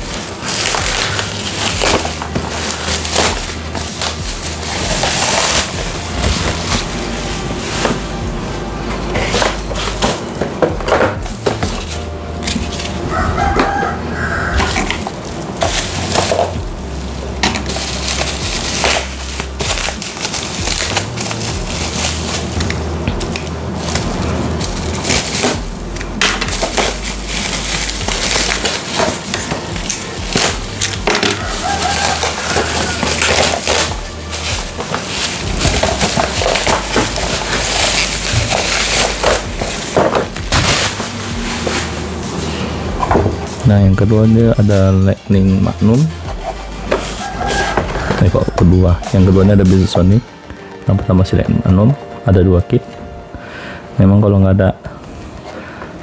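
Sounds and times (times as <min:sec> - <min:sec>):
box cutter slitting: 0:00.0 - 0:08.1, 0:17.4 - 0:43.6
bubble wrap crinkling: 0:00.0 - 0:52.0
background music with bass: 0:00.0 - 0:56.0.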